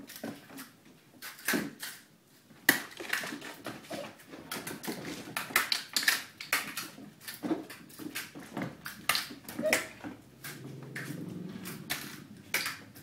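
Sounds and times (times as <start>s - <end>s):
kittens' paws scrabbling on wood: 2.7s - 13.0s.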